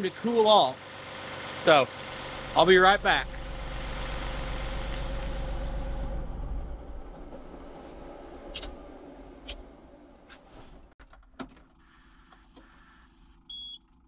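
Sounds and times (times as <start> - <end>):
diesel engine running down: 0.0 - 10.9.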